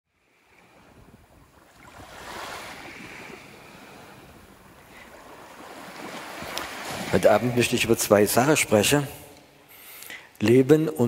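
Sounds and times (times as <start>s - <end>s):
small waves washing on sand: 0.2s - 8.1s.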